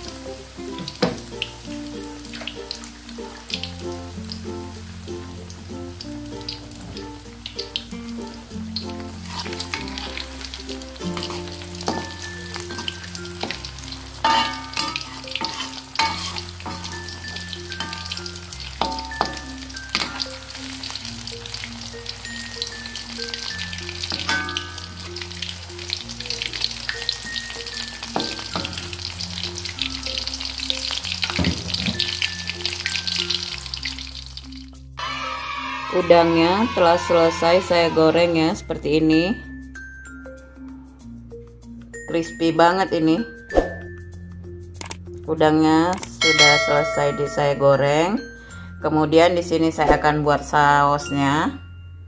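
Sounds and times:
shrimp sizzling in hot oil: 0.0s - 40.2s
background music: 0.0s - 52.0s.

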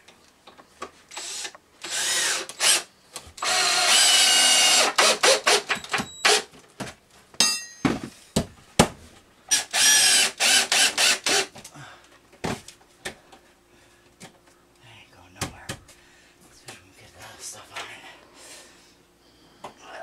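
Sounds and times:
cordless drill motor: 1.1s - 6.4s, 9.5s - 11.5s.

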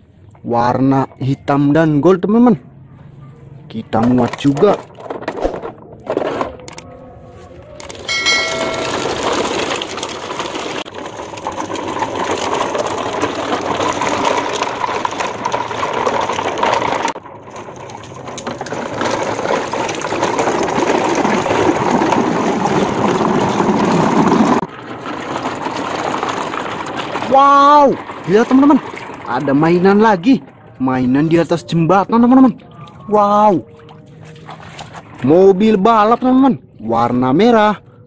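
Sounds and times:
plastic toy truck rattling: 3.9s - 6.9s, 7.8s - 30.7s.

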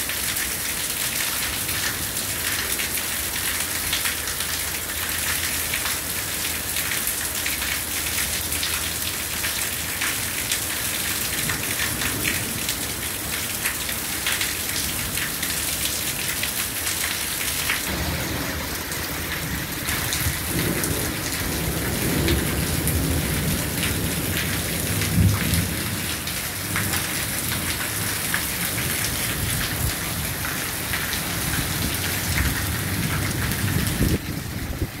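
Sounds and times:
heavy rain pouring: 0.0s - 35.0s
thunder rumbling: 17.9s - 27.6s.

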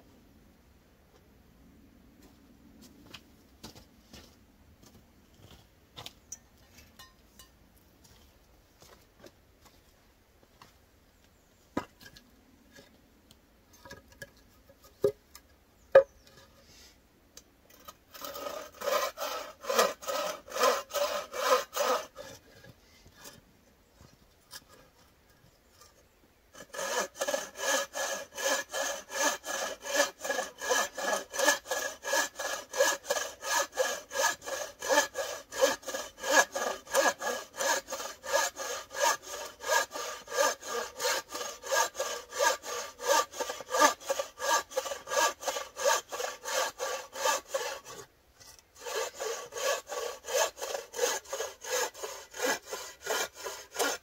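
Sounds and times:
saw cutting wood: 17.7s - 23.4s, 26.6s - 54.0s.

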